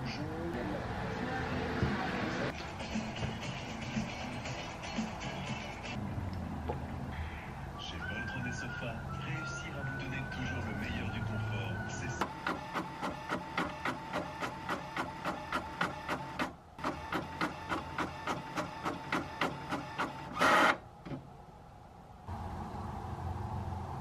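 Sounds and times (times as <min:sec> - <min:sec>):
inkjet print head shuttling: 0:12.2 - 0:21.2.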